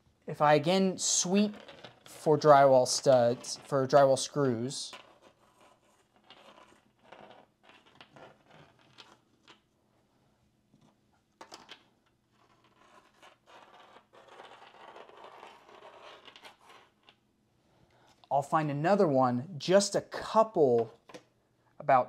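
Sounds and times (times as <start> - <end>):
magnet scraping drywall: 5.0 - 9.3, 12.3 - 17.1.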